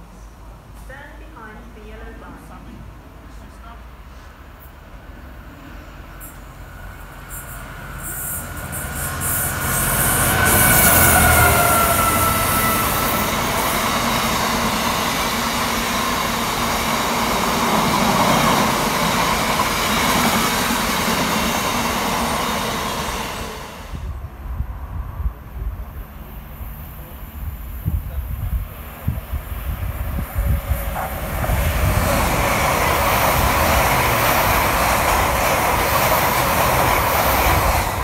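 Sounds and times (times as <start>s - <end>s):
freight train passing: 0.0s - 38.0s
locomotive high tone dropping: 7.2s - 16.2s.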